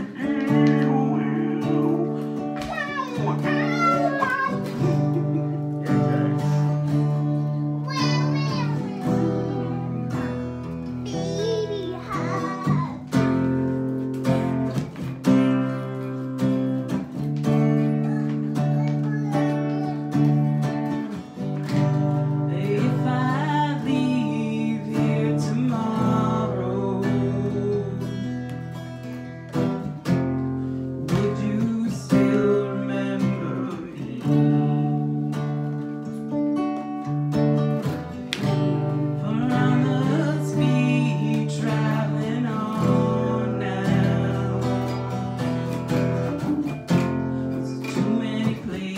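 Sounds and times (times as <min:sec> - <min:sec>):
woman singing: 0:00.0 - 0:02.6, 0:22.4 - 0:28.4, 0:31.0 - 0:35.2, 0:39.1 - 0:45.2, 0:47.6 - 0:48.9
acoustic guitar strumming: 0:00.0 - 0:48.9.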